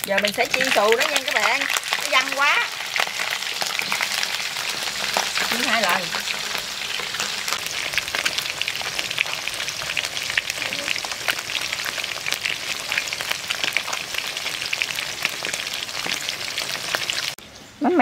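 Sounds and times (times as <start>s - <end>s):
fish deep-frying in oil: 0.0s - 18.0s.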